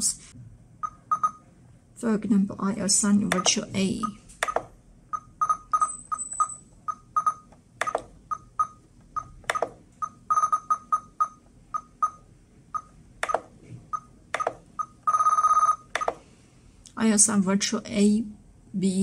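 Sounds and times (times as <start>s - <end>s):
sharp clicks: 4.4s - 4.7s, 7.8s - 8.1s.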